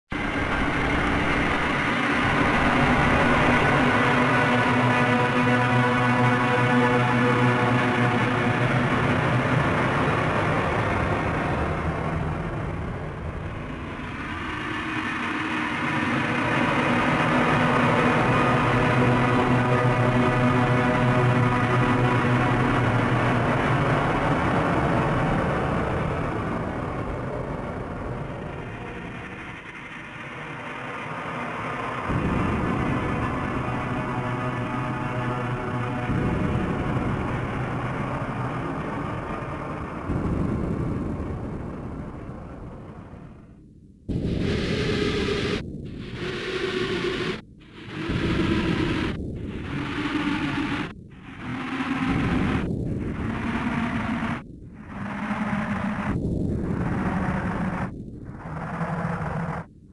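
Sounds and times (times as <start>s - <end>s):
dense low rumbling noise: 0.1s - 59.9s
low steady tones: 0.1s - 59.9s
steady drone: 0.1s - 59.9s
dense low rumbling: 32.0s - 59.9s.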